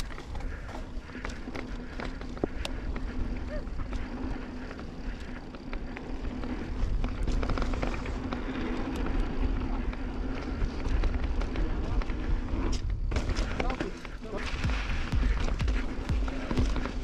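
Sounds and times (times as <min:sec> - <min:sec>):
bike rattles and clicks: 0:00.0 - 0:17.0
bike tyres rolling over dirt: 0:00.0 - 0:17.0
wind rumbling on microphone: 0:00.0 - 0:17.0.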